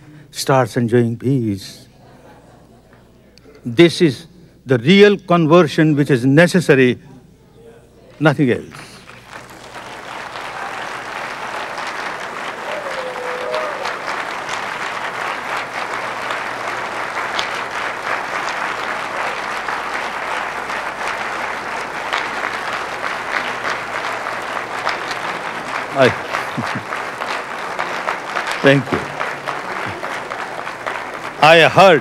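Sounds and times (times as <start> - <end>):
large audience applauding: 8.7 - 32.0.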